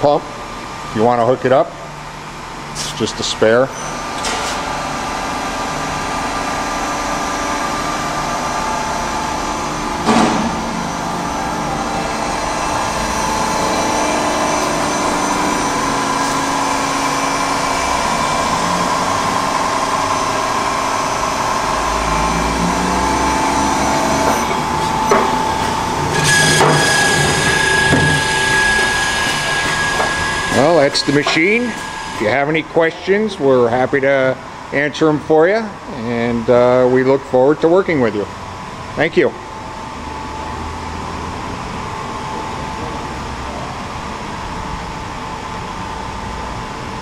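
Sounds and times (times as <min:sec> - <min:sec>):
high steady whine: 0:00.0 - 0:47.0
lathe humming: 0:03.9 - 0:34.8.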